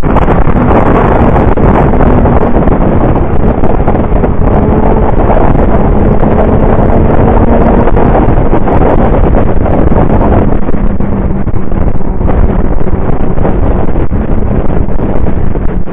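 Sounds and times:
motorcycle engine running: 0.0s - 15.9s
wind rushing over microphone: 0.0s - 15.9s.

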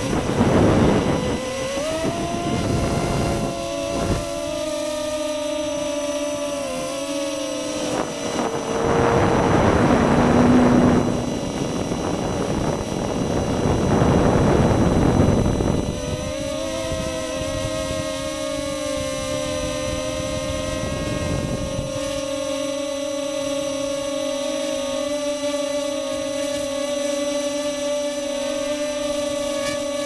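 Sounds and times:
quadcopter motors whining: 0.0s - 30.0s
loud rushing noise: 7.8s - 15.6s.

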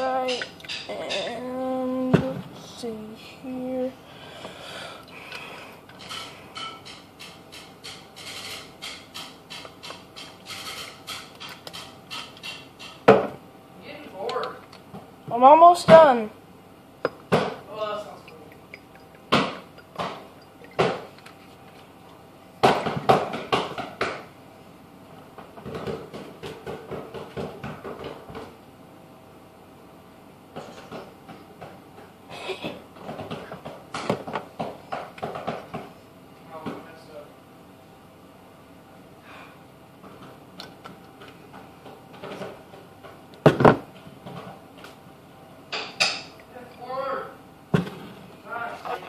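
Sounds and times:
glass bottles knocking and clinking: 17.1s - 21.8s.

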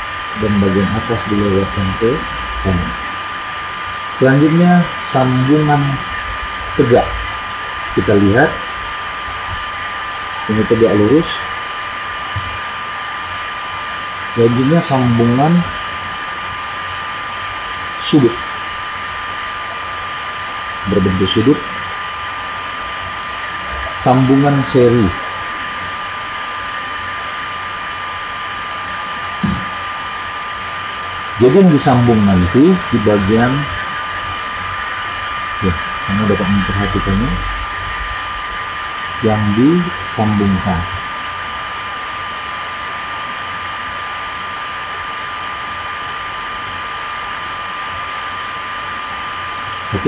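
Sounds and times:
steady background hiss: 0.0s - 50.0s
thin constant whine: 0.0s - 50.0s
voice murmuring: 0.4s - 3.0s, 35.6s - 37.6s.

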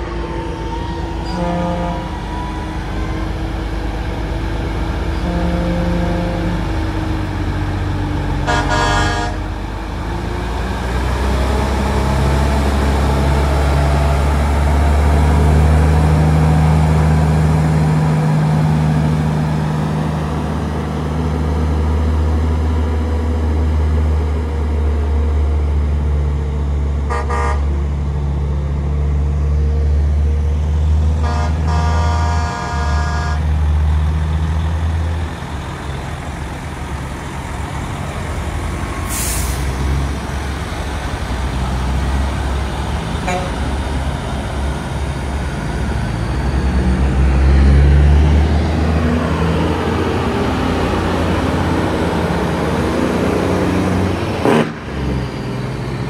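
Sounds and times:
truck diesel engines passing: 0.0s - 56.0s
truck air horn blasts: 1.2s - 2.2s, 5.2s - 6.7s, 8.4s - 9.5s, 27.1s - 27.7s, 31.2s - 33.5s, 43.2s - 43.8s.

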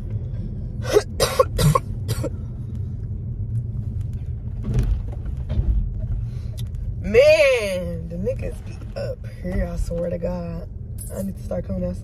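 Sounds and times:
car rumble: 0.0s - 12.0s
person coughing: 0.9s - 2.4s.

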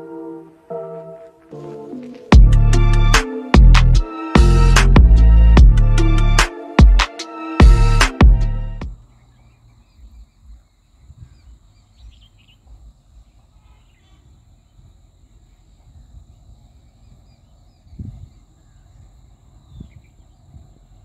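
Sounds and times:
insects droning: 8.8s - 21.0s
faint bird chirps: 8.9s - 21.0s.

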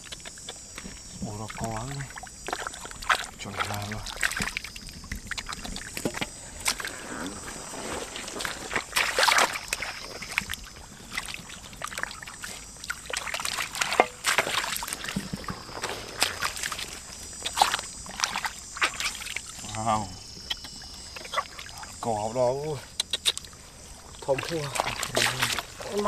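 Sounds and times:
hands splashing in muddy water: 1.5s - 19.4s, 24.2s - 26.0s.

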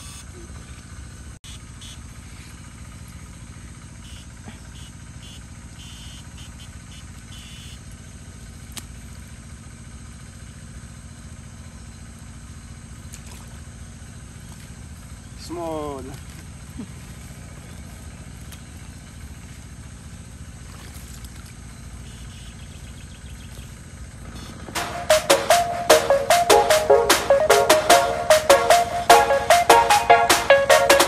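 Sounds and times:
short high-pitched buzzes: 0.0s - 0.3s, 4.0s - 7.8s
small engine droning: 0.0s - 31.0s.

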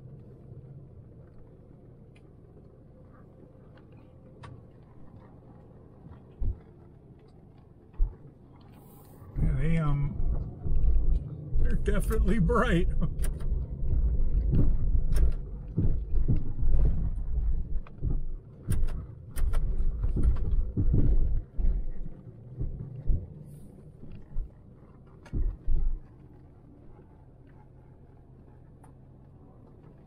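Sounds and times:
engine and road rumble: 0.0s - 30.0s
knocks and clicks in car cab: 14.3s - 22.0s.

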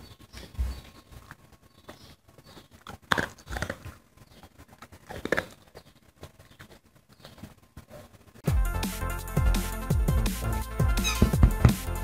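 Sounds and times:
dog crunching dry kibble: 1.2s - 6.9s.

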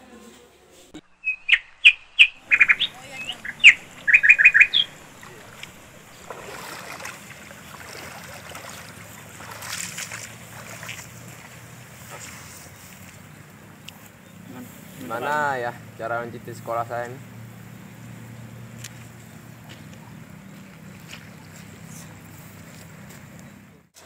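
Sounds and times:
soft outdoor noise: 0.0s - 24.0s
bird chirping: 1.0s - 8.5s.

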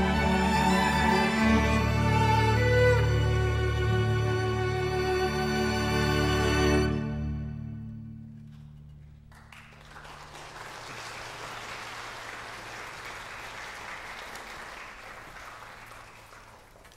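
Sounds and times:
string orchestra low chord: 0.0s - 9.2s
audience applause: 9.3s - 16.9s.

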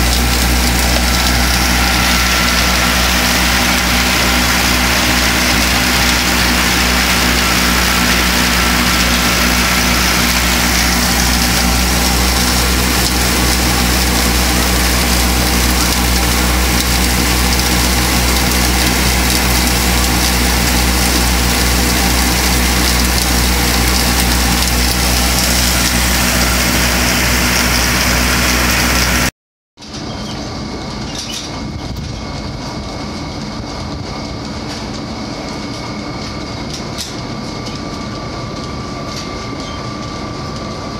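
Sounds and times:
steady hum: 0.0s - 29.3s
tractor engine under load: 0.0s - 40.9s.

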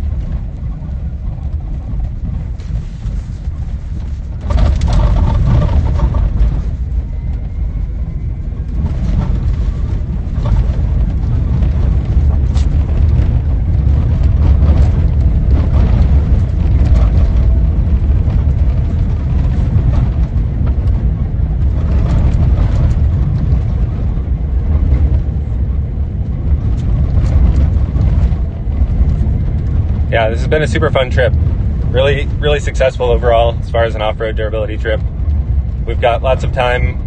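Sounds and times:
gravel ticks and knocks: 0.0s - 7.6s
low road rumble in car cabin: 0.0s - 37.0s.

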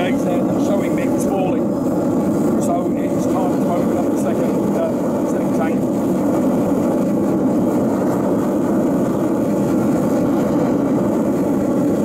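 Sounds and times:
furnace blower roaring: 0.0s - 12.0s.

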